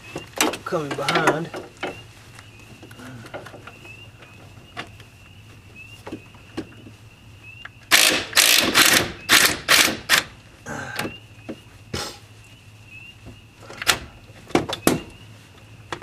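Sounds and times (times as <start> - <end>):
ratchet wrench clicking: 7.9 - 10.2.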